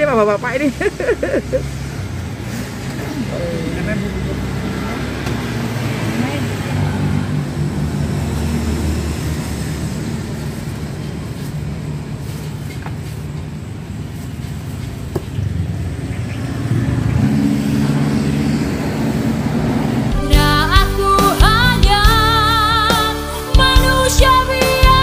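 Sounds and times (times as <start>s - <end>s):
passing motor vehicles hum: 0.0s - 21.9s
engine drone: 0.0s - 23.0s
music: 20.1s - 25.0s.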